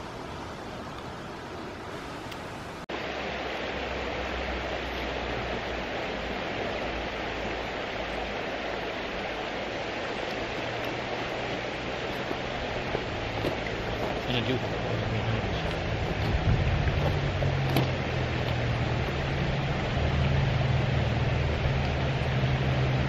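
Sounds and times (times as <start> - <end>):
shallow river over stones: 0.0 - 23.0
low rumble: 12.4 - 23.0.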